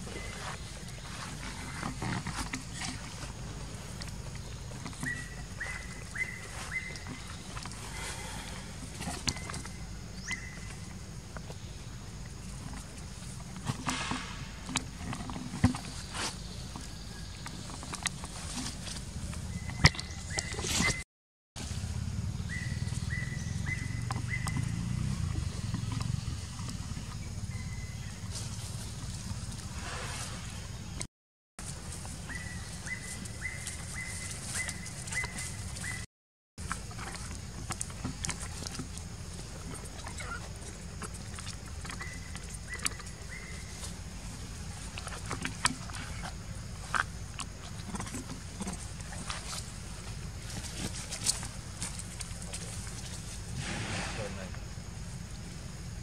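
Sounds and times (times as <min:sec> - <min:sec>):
high whistled call: 0:05.0 - 0:07.1.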